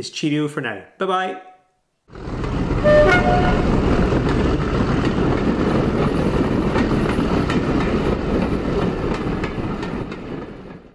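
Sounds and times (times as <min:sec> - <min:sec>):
train rumbling on track: 0:02.1 - 0:10.9
wheels clicking over rail joints: 0:02.2 - 0:02.9, 0:03.7 - 0:10.9.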